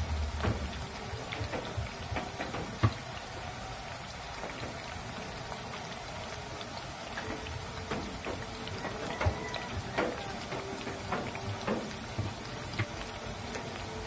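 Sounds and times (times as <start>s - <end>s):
food sizzling in hot oil: 0.0s - 14.0s
oil popping: 0.0s - 14.0s.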